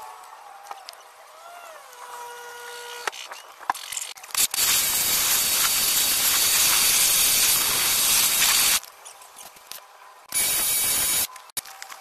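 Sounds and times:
water spray hissing: 0:04.4 - 0:08.8.

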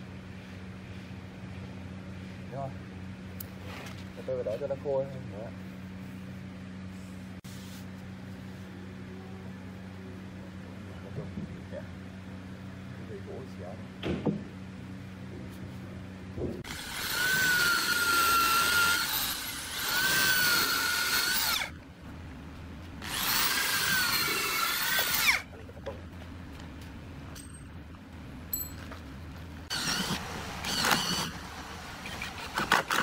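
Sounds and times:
power drill boring into wood: 0:16.6 - 0:21.7, 0:23.0 - 0:25.4, 0:29.7 - 0:31.4.

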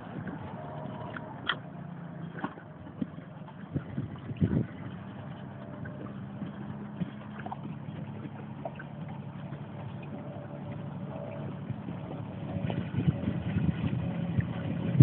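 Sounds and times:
outboard motor humming: 0:00.0 - 0:15.0
water noise: 0:00.0 - 0:15.0
wind noise: 0:00.0 - 0:15.0.

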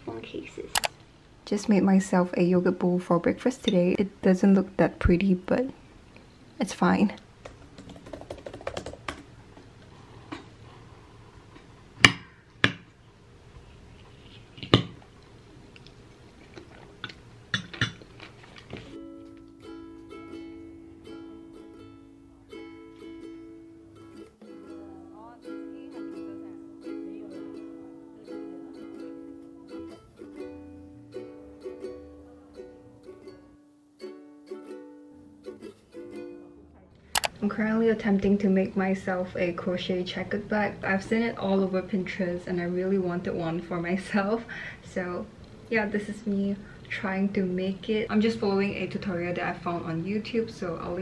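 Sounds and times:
quiet chewing: 0:13.9 - 0:19.6
plucked string music: 0:18.9 - 0:36.9.

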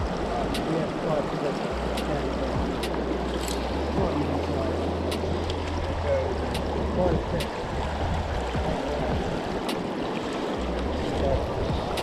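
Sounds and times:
river rushing over stones: 0:00.0 - 0:12.0
light ticks: 0:00.4 - 0:00.7, 0:01.9 - 0:03.7, 0:05.1 - 0:05.8, 0:06.5 - 0:06.7.

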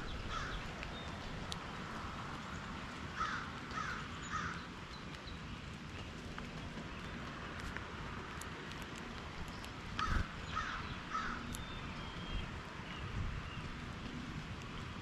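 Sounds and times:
outdoor background hiss: 0:00.0 - 0:15.0
crow cawing: 0:00.3 - 0:00.6, 0:03.2 - 0:04.6, 0:10.0 - 0:11.5.

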